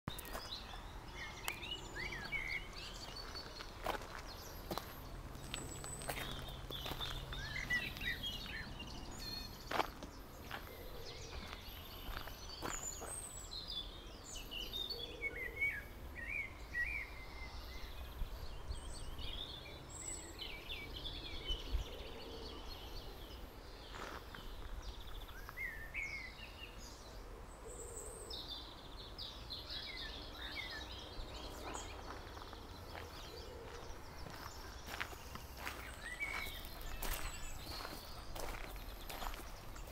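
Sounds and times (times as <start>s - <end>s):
footsteps on gravel: 0.1s - 13.4s, 23.8s - 25.7s, 31.5s - 39.9s
songbirds chirping and trilling: 0.1s - 39.9s.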